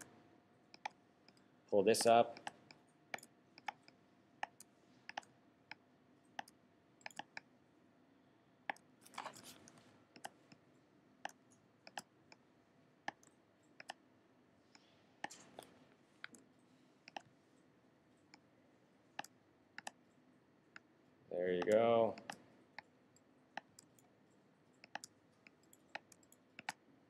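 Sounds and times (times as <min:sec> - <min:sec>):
computer mouse clicks: 0:00.7 - 0:07.5, 0:08.7 - 0:10.6, 0:11.2 - 0:14.0, 0:14.7 - 0:17.4, 0:19.1 - 0:20.0, 0:21.6 - 0:26.9
soft rustle: 0:09.0 - 0:10.0.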